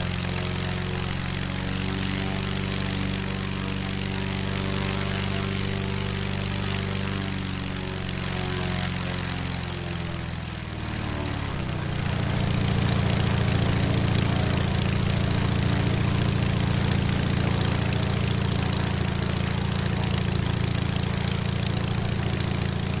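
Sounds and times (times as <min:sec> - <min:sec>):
airplane engine running: 0:00.0 - 0:23.0.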